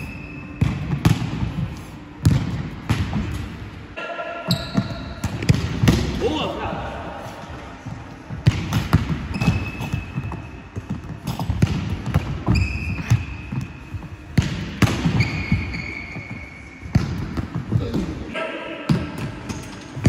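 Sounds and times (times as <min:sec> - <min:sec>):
shoes squeaking on floor: 0:04.5 - 0:05.2, 0:09.2 - 0:11.5, 0:12.3 - 0:14.2, 0:15.0 - 0:17.0.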